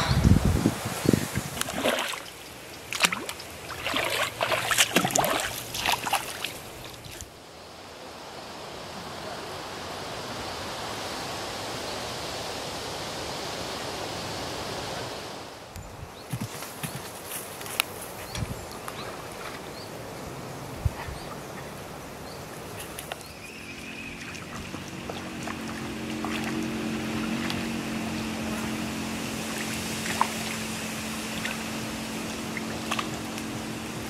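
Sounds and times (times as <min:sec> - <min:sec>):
steady rushing noise: 0:00.0 - 0:02.7, 0:21.6 - 0:34.0.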